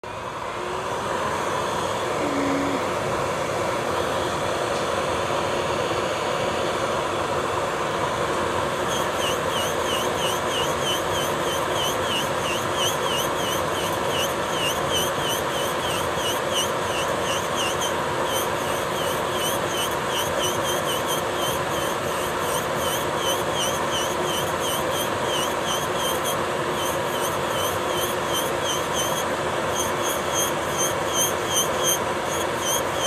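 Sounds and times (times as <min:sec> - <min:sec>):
electric nail drill whining: 0:08.8 - 0:33.0.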